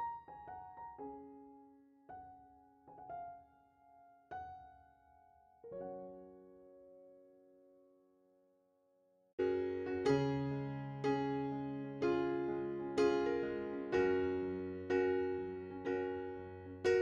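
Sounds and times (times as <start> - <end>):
soft piano music: 0.0 - 8.1, 9.4 - 17.0.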